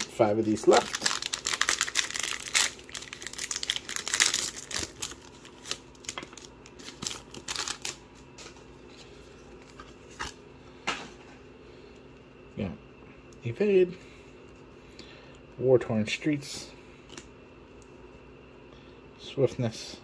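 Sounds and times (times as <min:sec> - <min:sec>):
wrapper tearing and crinkling: 0:00.0 - 0:08.0
rustling of wrapper and cards: 0:00.0 - 0:10.4.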